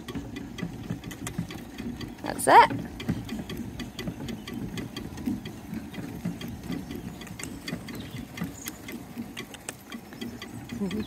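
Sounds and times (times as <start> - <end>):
harness and carriage rattling: 0.0 - 11.0
sharp clicks: 0.0 - 11.0.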